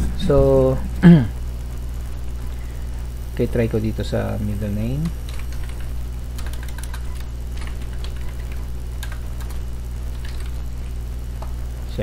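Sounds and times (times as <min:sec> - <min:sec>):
steady low hum: 0:00.0 - 0:12.0
keyboard keys clicking: 0:05.3 - 0:10.6.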